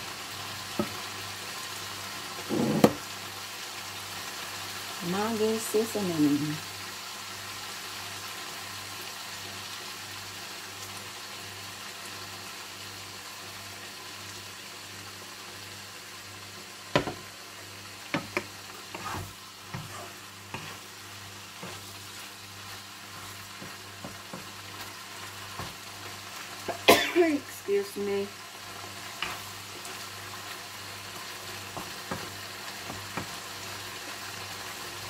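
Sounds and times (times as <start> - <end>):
chicken sizzling in a frying pan: 0.0 - 35.0
spatula scraping a pan: 18.2 - 26.8.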